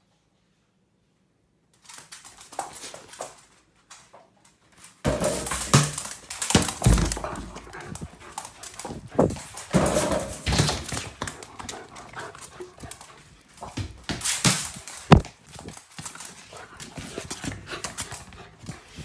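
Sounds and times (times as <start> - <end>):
dog playing noises: 1.8 - 19.0
knocks and rustling: 5.0 - 19.0.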